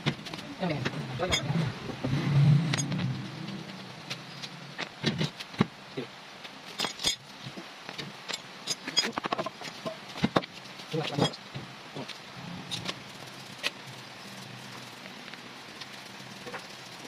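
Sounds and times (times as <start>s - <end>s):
metal tools clinking: 1.2s - 1.6s, 6.7s - 7.3s, 8.3s - 10.0s.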